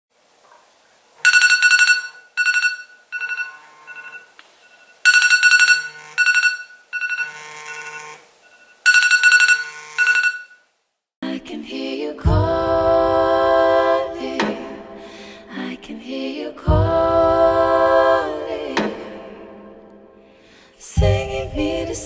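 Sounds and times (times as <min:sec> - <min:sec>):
phone alarm beeps: 0:01.3 - 0:10.6.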